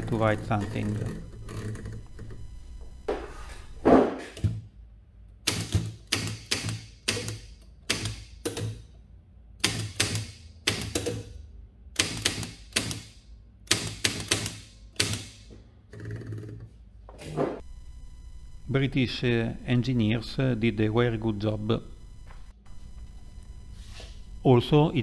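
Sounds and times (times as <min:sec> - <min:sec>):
manual typewriter typing: 0:00.0 - 0:02.4, 0:12.0 - 0:13.1, 0:13.7 - 0:15.4.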